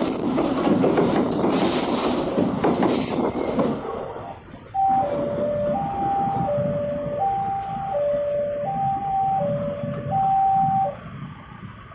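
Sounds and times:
two-tone warning alarm: 4.8s - 11.1s.

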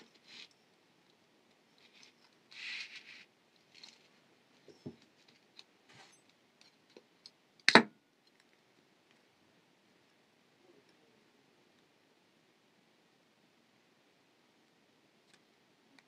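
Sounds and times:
rustle of handling wire: 0.0s - 7.4s.

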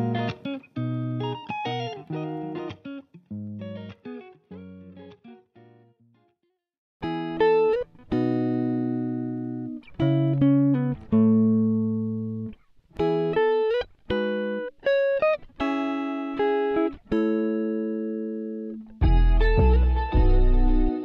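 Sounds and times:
plucked string instrument music: 0.0s - 5.9s, 7.0s - 21.0s.

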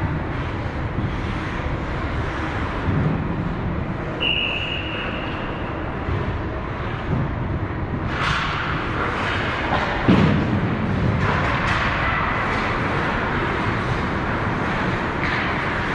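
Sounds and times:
ice rink noise: 0.0s - 15.9s
referee's whistle: 4.2s - 5.4s.

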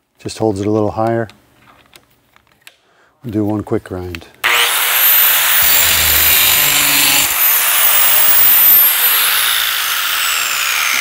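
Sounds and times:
angle grinder grinding metal blade: 4.5s - 11.0s
grinder winding down: 4.5s - 11.0s.

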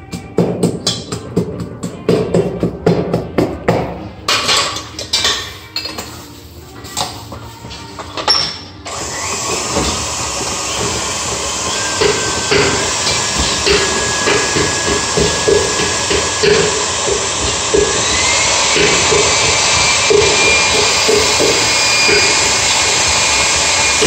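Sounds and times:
knocks and clatter: 12.0s - 23.4s.

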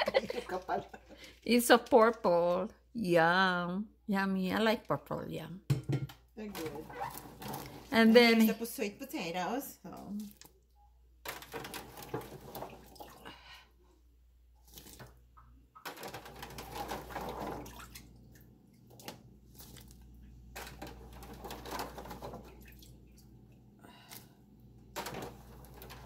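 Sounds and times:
water splashing and dripping: 14.6s - 24.2s.

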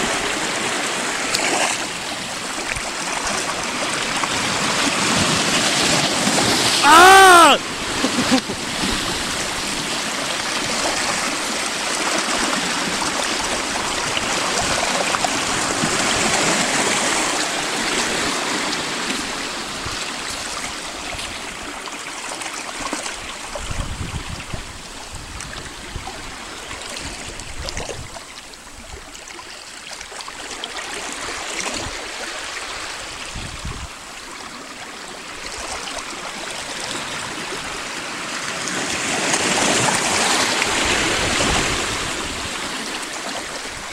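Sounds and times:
waves splashing on rocks: 0.0s - 21.0s, 35.3s - 43.9s.

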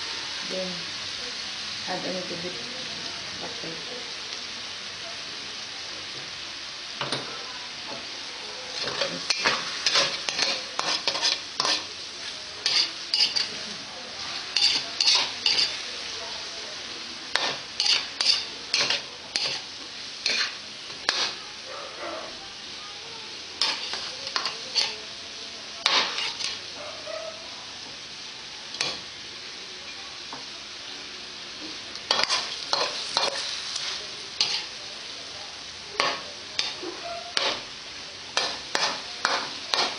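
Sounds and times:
chicken sizzling in a wok: 0.0s - 39.9s
metal spatula scraping pan: 8.8s - 11.9s, 12.6s - 15.8s, 17.3s - 21.4s, 23.6s - 25.0s, 25.8s - 26.6s, 32.1s - 34.7s, 36.0s - 37.7s, 38.4s - 39.9s.

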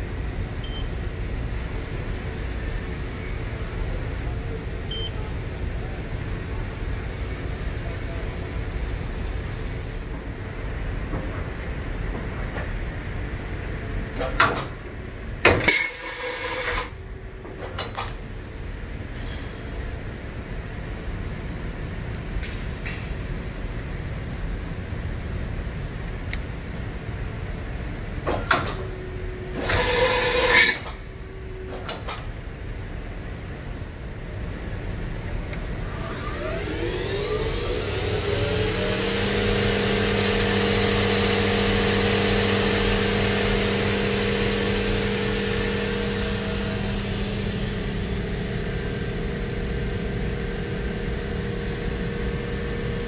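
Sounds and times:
machine low hum and rumble: 0.0s - 53.0s
brief motor whine: 15.7s - 17.0s, 29.5s - 31.8s, 35.8s - 53.0s
loud air hiss: 29.6s - 30.9s.

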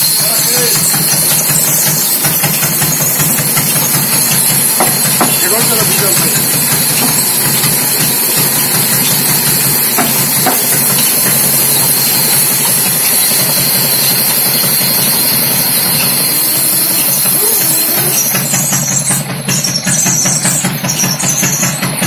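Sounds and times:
band saw cutting log: 0.0s - 22.0s
low machinery hum: 0.0s - 22.0s.

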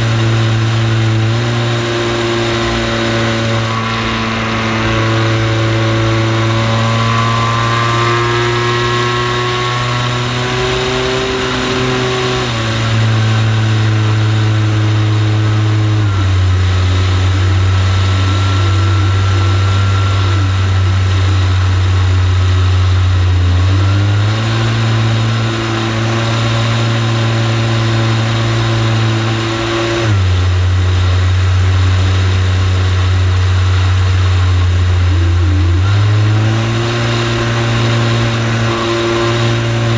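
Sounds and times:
model plane motor drone: 0.0s - 30.2s.

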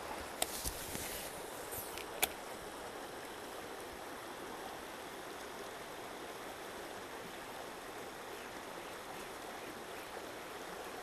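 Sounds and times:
river flowing over rocks: 0.0s - 11.0s.

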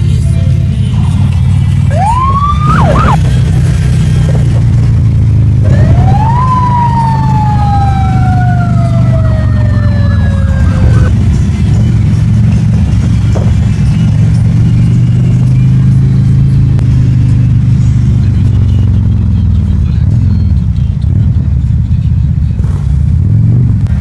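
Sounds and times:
motorcycle engines rumbling: 0.0s - 24.0s
siren wailing: 1.8s - 3.4s, 5.6s - 11.1s.

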